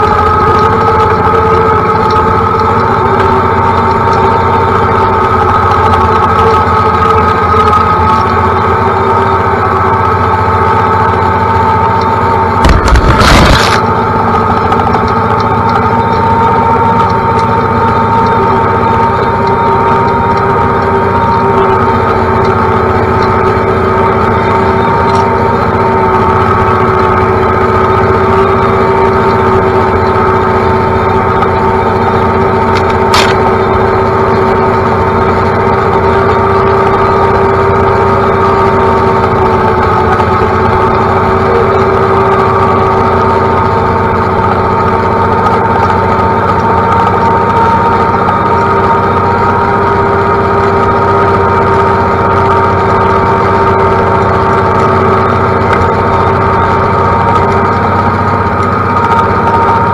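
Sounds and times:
tractor diesel engine running: 0.0 - 59.9
branches scraping cab: 12.6 - 13.9, 32.7 - 33.6.

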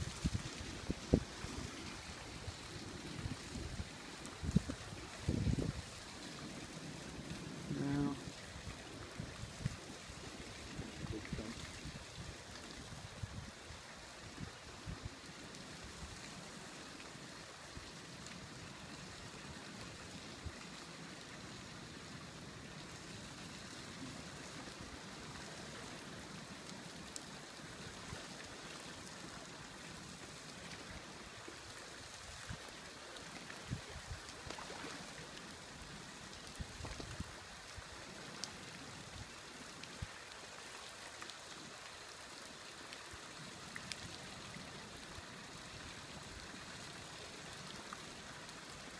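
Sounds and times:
creek water with drifting ice: 0.0 - 48.9.

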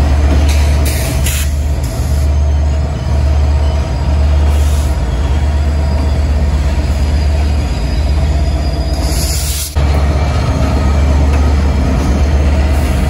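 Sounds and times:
diesel locomotive engine running: 0.0 - 13.0.

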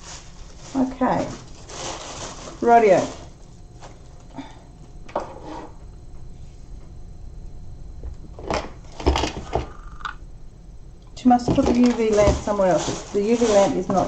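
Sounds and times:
plastic packaging rustling: 0.0 - 4.3, 11.4 - 14.0.

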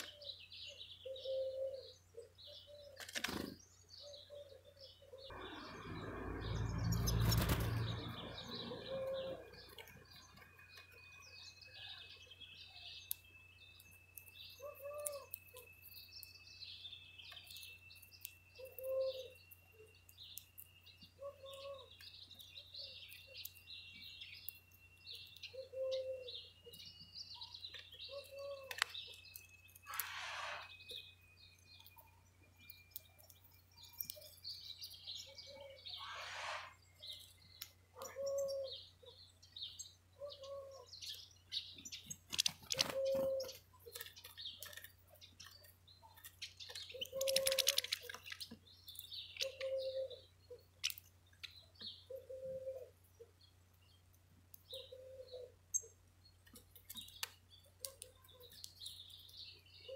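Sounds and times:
small birds chirping: 0.0 - 59.9
low cooing calls: 1.0 - 3.0, 4.0 - 5.4, 8.3 - 9.7, 14.6 - 15.6, 18.6 - 19.4, 21.2 - 22.0, 25.4 - 26.7, 28.0 - 28.8, 38.0 - 39.2, 40.2 - 41.0, 42.7 - 43.6, 46.9 - 48.1, 49.3 - 50.7, 51.9 - 53.0, 54.7 - 55.6
wing flapping: 7.1 - 8.0.

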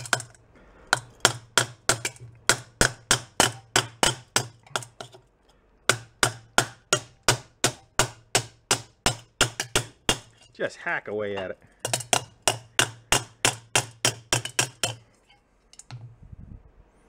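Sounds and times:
hammer tapping on metal: 0.0 - 5.2, 5.9 - 10.5, 11.4 - 15.0
low steady hum: 0.0 - 17.0.

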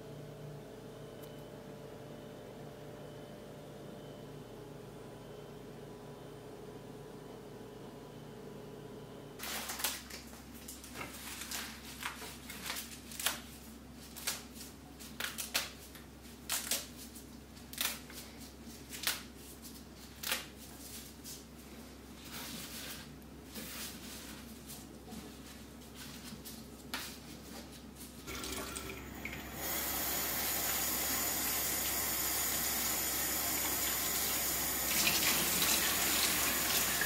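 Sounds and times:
herb leaves rustling and snapping: 9.4 - 21.1.

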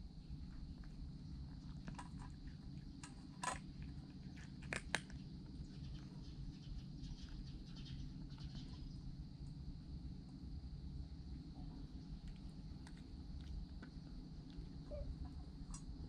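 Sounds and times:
low background rumble: 0.0 - 16.0
cat eating from metal bowl clicks: 1.7 - 5.2.

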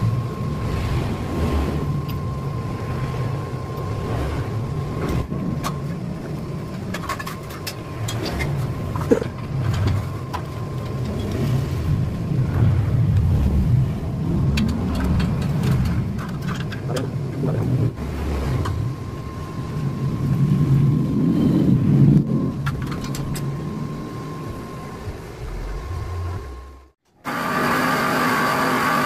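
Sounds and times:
thin steady tone: 0.0 - 14.4
low mechanical rumble: 0.0 - 27.3.

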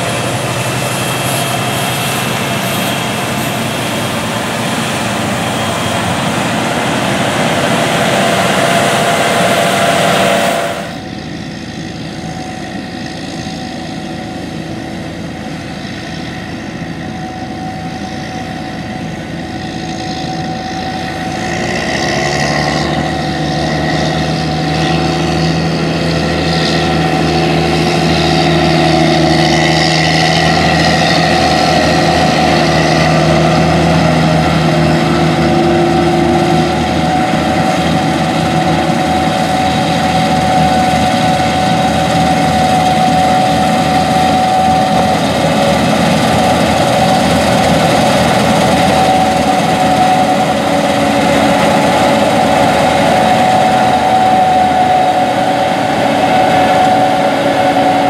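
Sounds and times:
diesel engines under load: 0.0 - 58.0.

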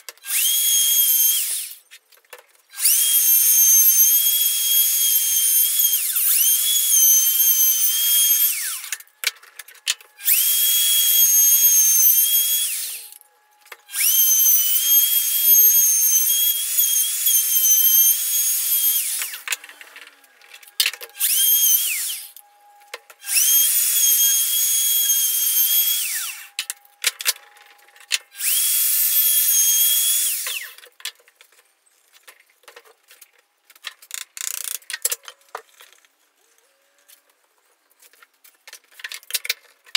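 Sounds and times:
electric router motor whining: 0.2 - 1.8, 2.7 - 30.8.

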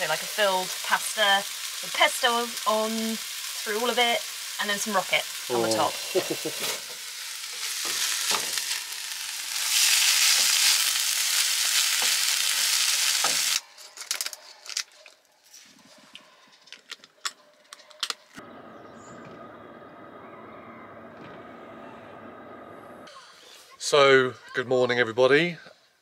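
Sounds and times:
food sizzling in frying pan: 0.0 - 13.6.

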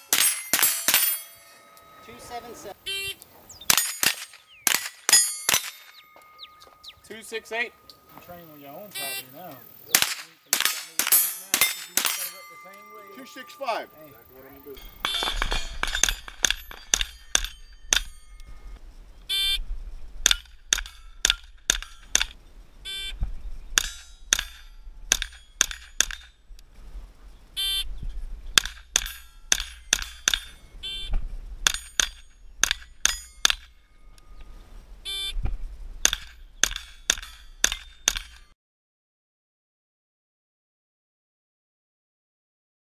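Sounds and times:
metallic ring of steel plates: 0.0 - 2.8, 5.1 - 8.2, 11.0 - 18.8, 28.7 - 30.7, 31.6 - 34.4
rifle shots: 3.7 - 6.0, 9.9 - 12.3, 15.0 - 18.1.

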